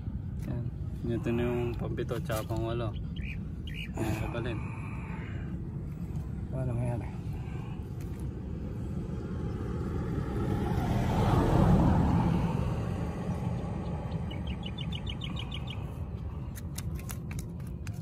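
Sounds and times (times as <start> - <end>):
vehicle passing: 5.5 - 16.5.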